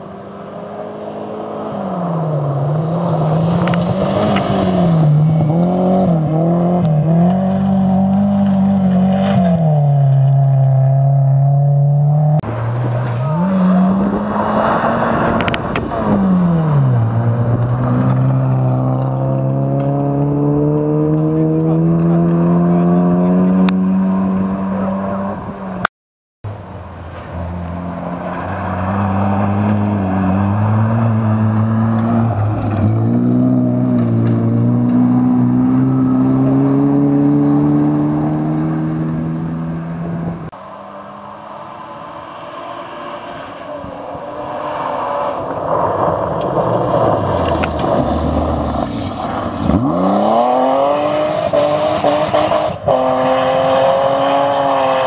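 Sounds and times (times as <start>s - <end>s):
rally car engine accelerating: 0.0s - 25.9s, 27.1s - 55.0s
rally car passing close: 0.0s - 25.9s, 26.6s - 55.0s
tyres on gravel: 27.0s - 35.2s, 42.3s - 52.9s.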